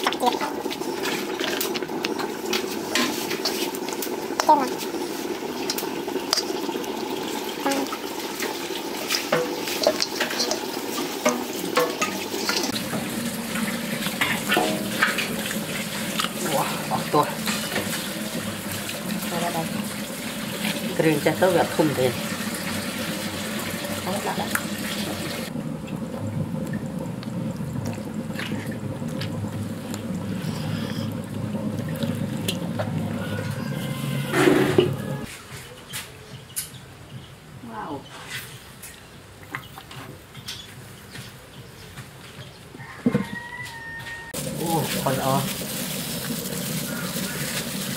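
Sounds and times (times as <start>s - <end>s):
steady watery hiss: 0.0s - 25.6s, 26.6s - 35.3s, 44.4s - 47.9s.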